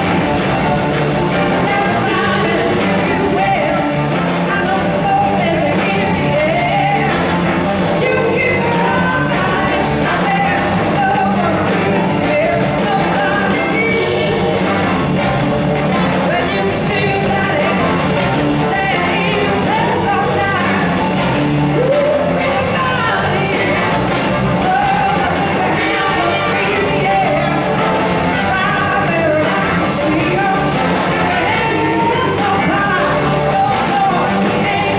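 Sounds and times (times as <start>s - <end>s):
horn section: 0.0s - 34.9s
live blues-rock band: 0.0s - 34.9s
woman singing: 1.5s - 14.8s, 16.2s - 21.0s, 21.7s - 34.9s.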